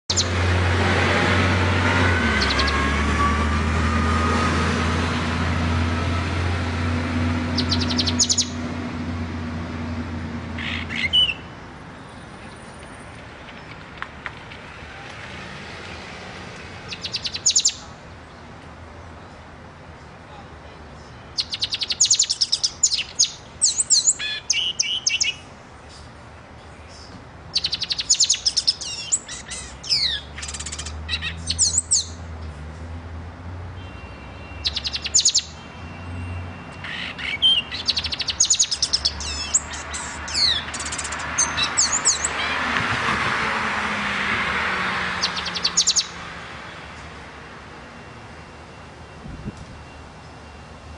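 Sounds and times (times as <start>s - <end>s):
songbird trilling and whistling: 7.6s - 8.6s, 10.6s - 11.5s, 16.9s - 17.8s, 21.4s - 25.5s, 27.0s - 32.2s, 34.6s - 35.6s, 36.8s - 42.5s, 45.2s - 46.2s.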